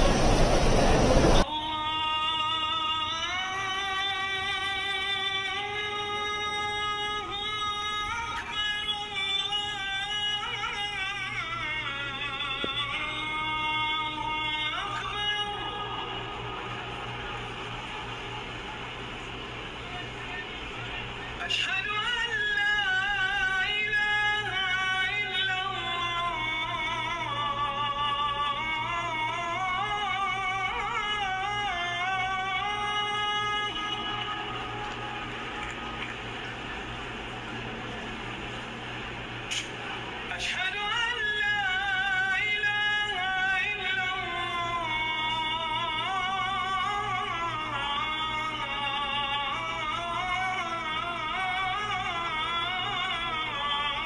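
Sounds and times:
person singing: 1.4 - 18.0.

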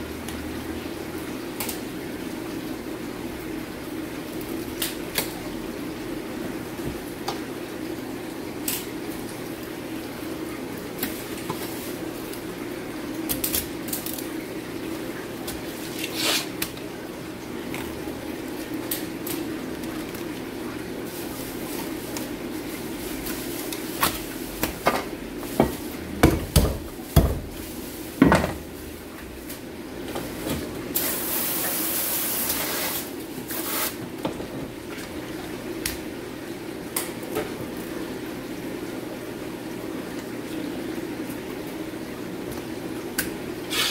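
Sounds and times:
knife scraping fish: 15.9 - 16.6.

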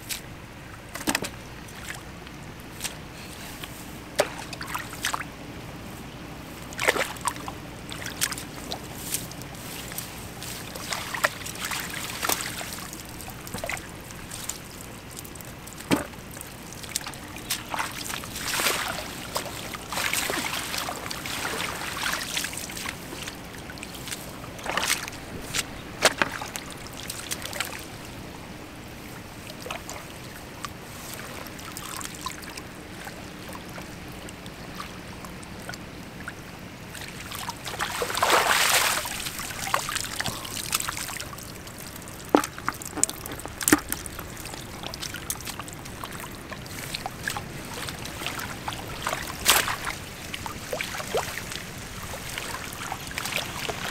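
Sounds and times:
net splashing in water: 15.7 - 28.0, 37.0 - 53.9
water trickling and dripping: 29.0 - 53.9.

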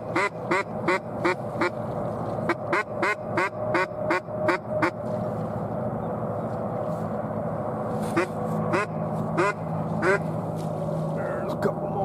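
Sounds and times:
duck quacking: 0.1 - 1.8, 2.5 - 5.0, 8.1 - 10.3.

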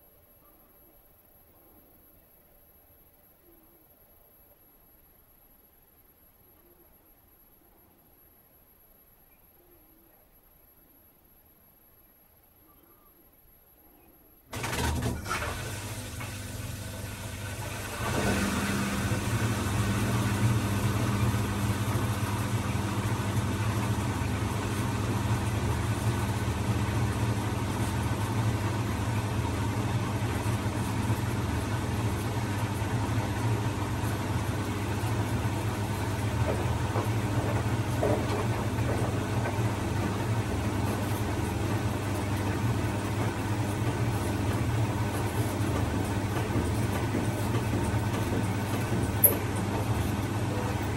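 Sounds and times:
washing machine drum humming: 14.5 - 50.9.

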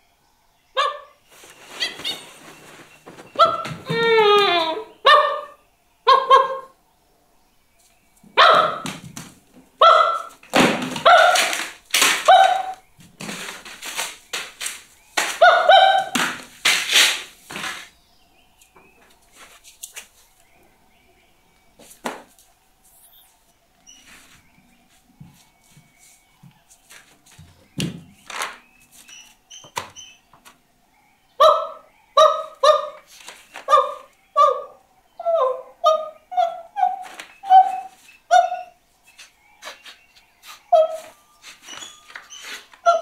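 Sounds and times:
man barking like a dog: 8.4 - 8.8.

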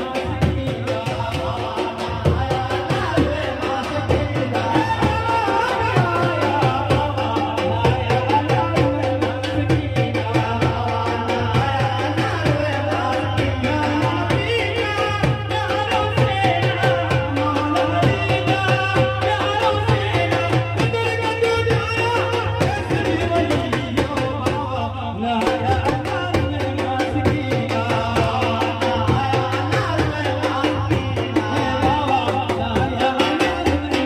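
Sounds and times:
hand drums: 0.0 - 34.0
man singing through loudspeakers: 0.0 - 34.0.

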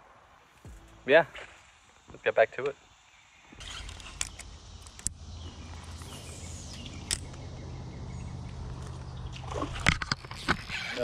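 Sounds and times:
sharp clicks: 3.6 - 5.2, 5.9 - 7.5.

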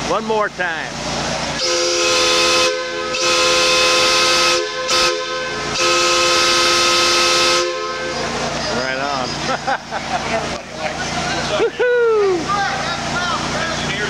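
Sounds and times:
steam hissing: 0.0 - 11.6
steam locomotive chime whistle: 1.6 - 9.3.

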